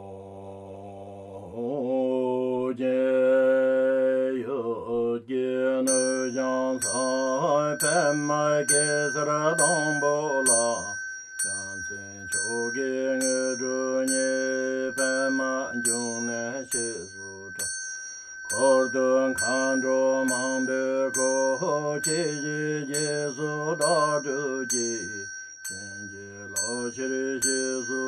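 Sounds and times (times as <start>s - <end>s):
bright bell-like chime: 5.9s - 28.0s.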